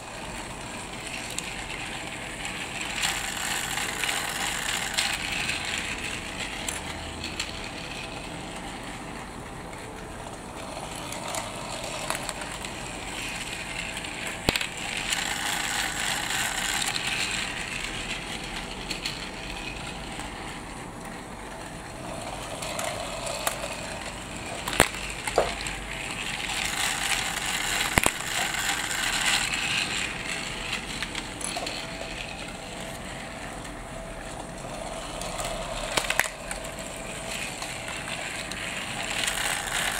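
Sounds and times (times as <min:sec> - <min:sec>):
toy train engine whirring: 0:00.0 - 0:39.9.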